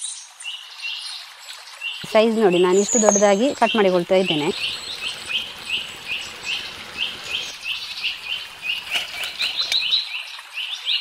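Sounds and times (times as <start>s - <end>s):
food deep-frying in oil: 0.1s - 11.0s
bird chirping: 1.8s - 11.0s.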